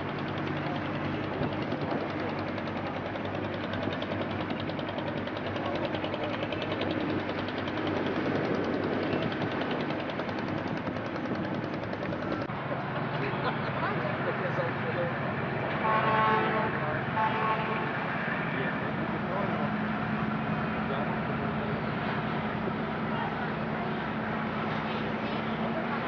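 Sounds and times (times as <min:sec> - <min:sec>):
boat engine knocking: 0:00.0 - 0:13.2
constant rushing noise: 0:00.0 - 0:26.0.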